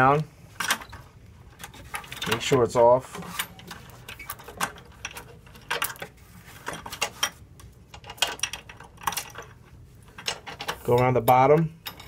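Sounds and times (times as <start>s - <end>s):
metal chain clinking and rattling: 6.7s - 12.0s.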